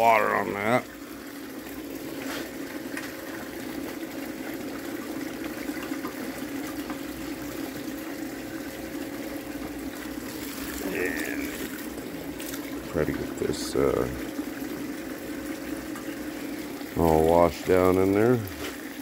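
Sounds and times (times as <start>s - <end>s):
water pump humming: 0.0s - 19.0s
water running and splashing: 0.0s - 19.0s.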